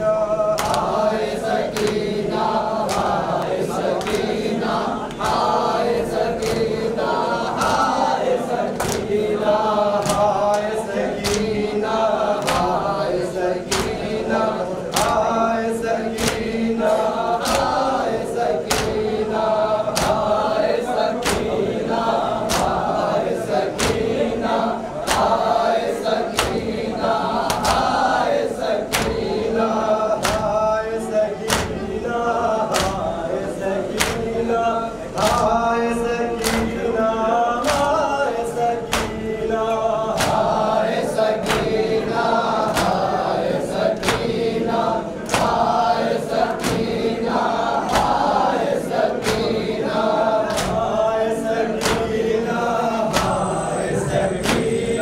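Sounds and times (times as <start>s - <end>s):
men chanting in unison: 0.0s - 55.0s
hands slapping chests: 0.6s - 15.4s, 16.1s - 29.6s, 30.2s - 30.6s, 31.4s - 31.9s, 32.7s - 33.1s, 33.9s - 34.3s, 36.4s - 36.8s, 37.6s - 38.1s, 38.8s - 39.3s, 40.1s - 41.8s, 44.0s - 44.6s, 45.2s - 45.9s, 46.5s - 48.4s, 49.1s - 49.7s, 50.4s - 50.9s, 51.7s - 52.2s.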